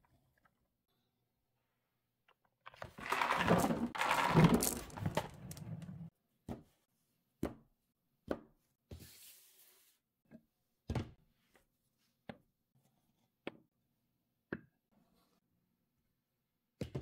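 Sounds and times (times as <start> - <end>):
toy truck rattling clatter: 3.0 - 5.6
wooden blocks knocking on table: 3.0 - 5.6.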